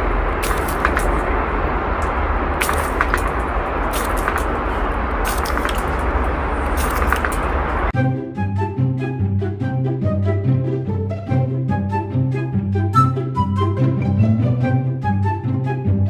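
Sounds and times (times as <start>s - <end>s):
deep rumble: 0.0s - 8.0s
steady rushing noise: 0.0s - 8.0s
sharp clicks: 0.4s - 1.3s, 2.0s - 7.9s.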